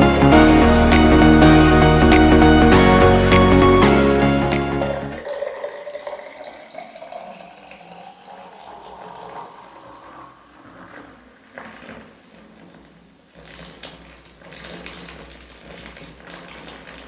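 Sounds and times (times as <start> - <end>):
liquid pouring into a jar: 5.2 - 12.2.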